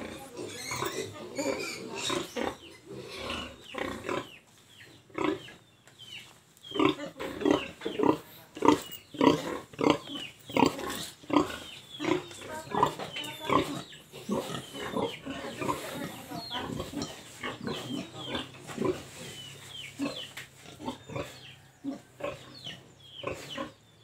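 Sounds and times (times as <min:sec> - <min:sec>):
pigs grunting: 0:00.0 - 0:04.4, 0:05.1 - 0:05.5, 0:06.8 - 0:23.8.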